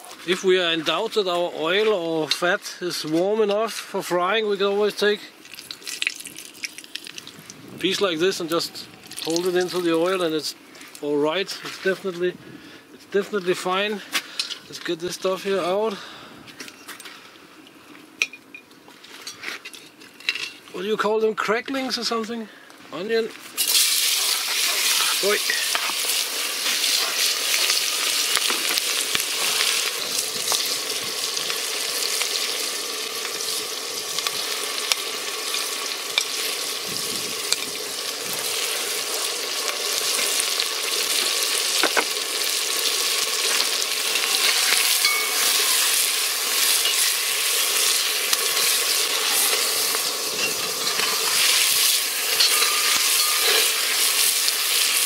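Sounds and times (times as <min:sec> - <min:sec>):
onion sizzling in fat: 0:04.2 - 0:12.3, 0:23.4 - 0:55.0
metal spatula stirring: 0:46.6 - 0:54.0.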